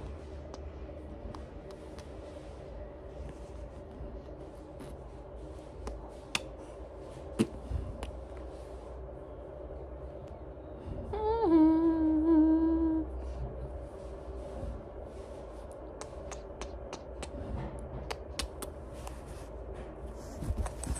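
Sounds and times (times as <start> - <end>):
person humming: 11.1 - 13.2
kissing lip smacks: 16.0 - 17.4, 18.1 - 18.8.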